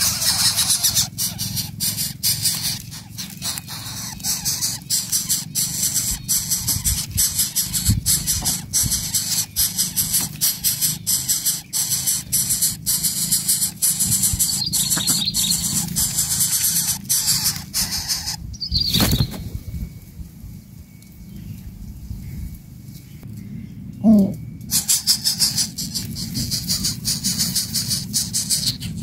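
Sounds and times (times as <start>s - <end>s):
nestlings begging with hissing rasp: 0.0s - 19.4s, 24.7s - 29.0s
bird wingbeats: 18.9s - 19.8s.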